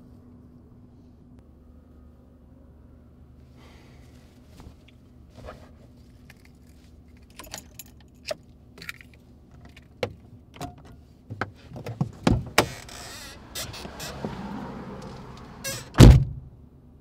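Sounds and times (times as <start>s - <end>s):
keys jangling: 7.2s - 9.1s
heavy thump: 15.9s - 16.4s.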